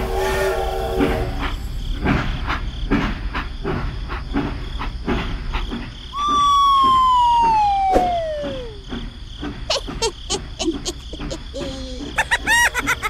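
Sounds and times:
train whistle sliding down in pitch: 0.0s - 1.4s, 6.2s - 8.8s.

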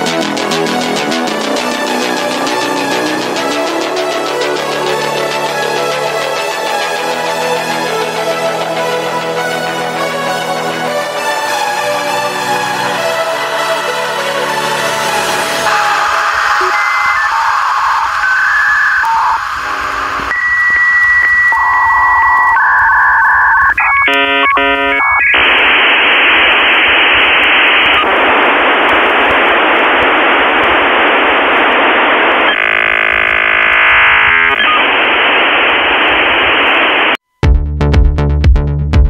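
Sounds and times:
electronic music with drum beat: 0.0s - 7.5s, 15.6s - 17.4s, 37.4s - 39.0s
radio static hiss: 15.4s - 37.2s
electronic beeping tones: 15.7s - 19.5s, 20.3s - 25.4s, 32.4s - 35.0s
warbling data chirps: 15.7s - 19.5s, 32.5s - 35.0s.

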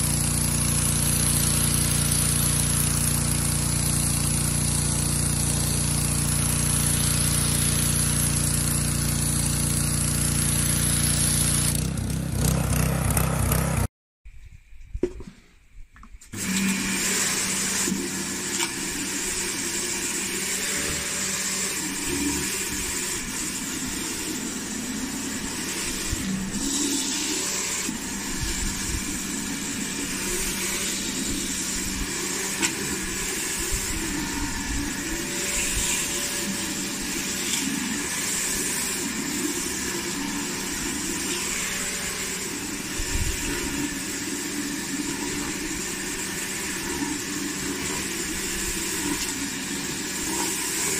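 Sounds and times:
motor and pump humming: 0.0s - 13.9s, 16.3s - 50.9s
pressure washer spray hissing: 25.4s - 34.0s.

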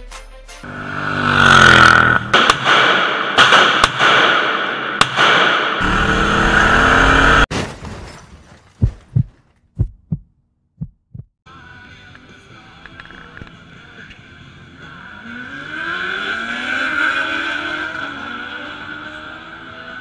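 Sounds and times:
car engine revving: 0.7s - 2.5s, 5.8s - 7.5s, 14.8s - 20.0s
sharp cracks: 1.8s - 5.8s
heartbeat thumps: 8.8s - 11.4s.

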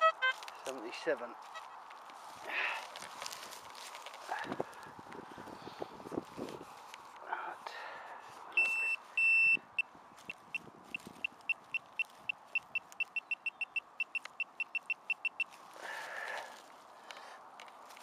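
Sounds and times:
metal detector probe beeping: 8.5s - 15.6s.

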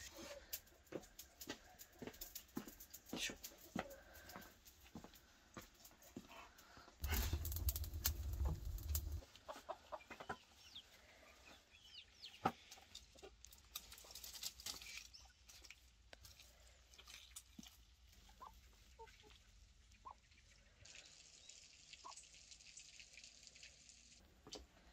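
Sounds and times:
chickens clucking: 6.3s - 13.4s, 18.2s - 20.6s
firewood knocking: 7.0s - 9.2s
low rumble: 7.0s - 9.2s.

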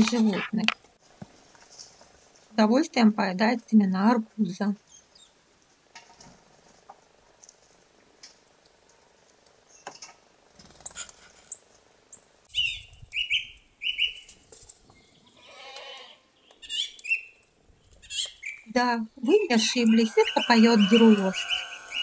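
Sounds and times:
thin high chirps: 19.5s - 22.0s
thrush singing: 19.5s - 22.0s.

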